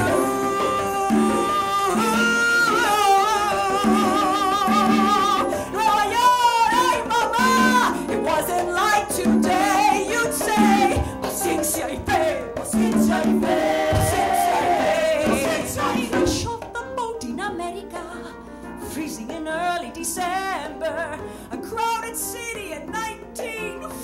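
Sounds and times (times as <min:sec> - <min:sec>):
person singing long held notes: 0:00.0 - 0:05.6
band playing: 0:00.0 - 0:08.5, 0:09.2 - 0:16.6.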